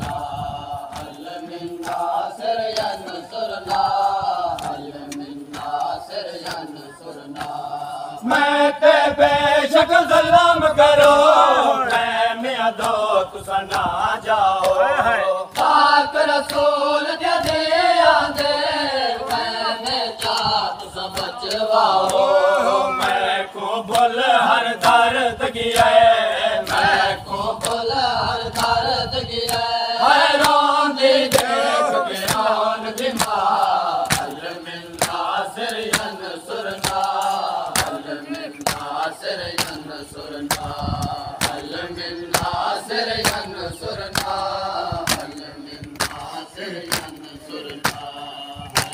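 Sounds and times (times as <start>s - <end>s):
men chanting in unison: 0.0s - 48.9s
hands slapping chests: 0.9s - 3.0s, 4.5s - 6.6s, 15.5s - 15.8s, 16.4s - 16.7s, 20.2s - 22.4s, 30.4s - 30.6s, 31.3s - 31.6s, 32.2s - 43.5s, 44.1s - 44.4s, 45.0s - 48.9s.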